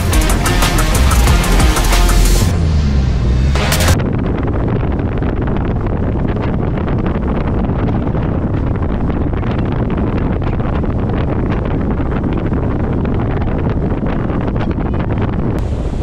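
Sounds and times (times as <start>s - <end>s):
music: 0.0s - 4.0s
wind blasting microphone: 0.0s - 16.0s.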